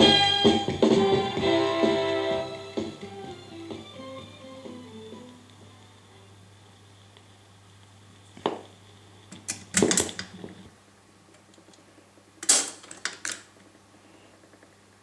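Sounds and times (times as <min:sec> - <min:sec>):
low steady hum: 0:00.0 - 0:15.0
record player tonearm clatter: 0:08.4 - 0:10.6.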